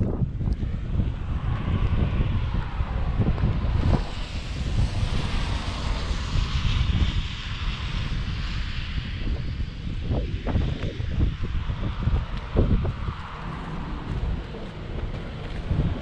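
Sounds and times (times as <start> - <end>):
road and tyre noise: 0.0 - 16.0
hiss of water spray: 3.6 - 9.8.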